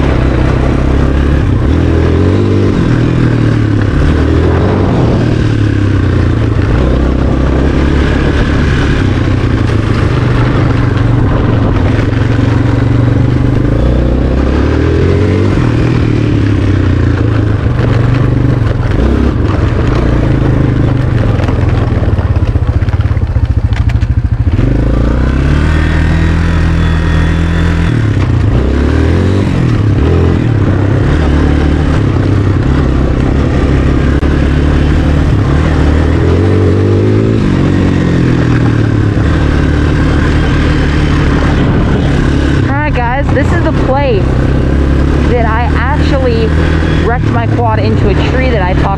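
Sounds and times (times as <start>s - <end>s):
quad engine revving: 0.0s - 48.9s.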